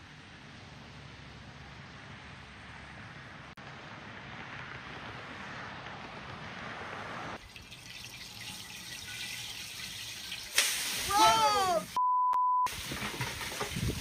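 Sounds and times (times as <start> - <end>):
car road and wind noise: 0.0 - 7.5, 12.7 - 14.0
thin outdoor hiss: 7.4 - 12.0.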